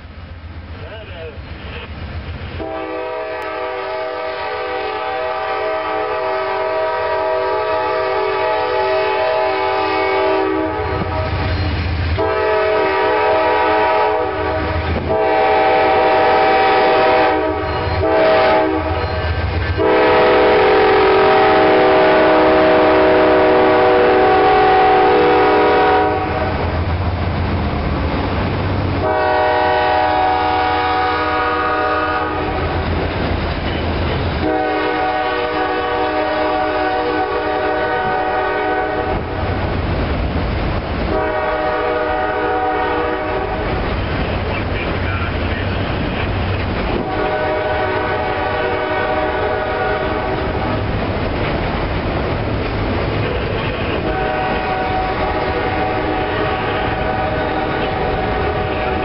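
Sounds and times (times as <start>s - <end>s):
rail cars rolling by: 0.0s - 59.0s
locomotive air horn blasts: 2.6s - 11.5s, 12.2s - 26.6s, 29.0s - 32.8s, 34.4s - 39.4s, 41.1s - 43.8s, 46.9s - 50.8s, 53.3s - 59.0s.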